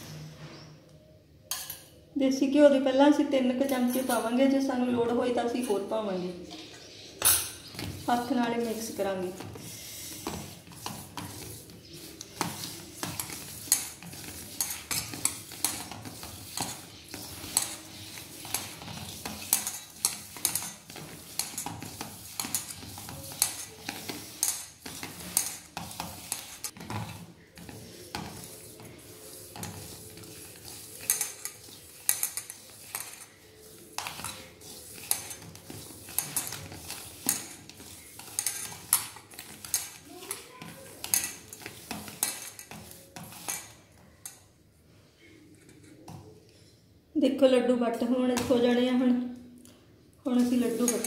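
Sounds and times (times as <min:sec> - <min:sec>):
crumbs scraping in steel bowl: 0:07.6 - 0:44.4, 0:50.3 - 0:51.0.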